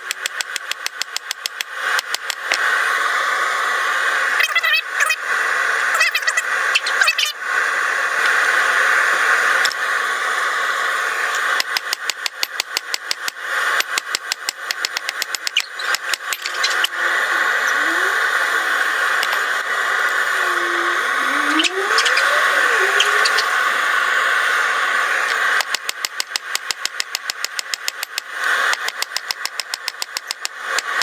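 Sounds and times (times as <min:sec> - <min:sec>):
forge roaring: 0:16.6 - 0:25.3.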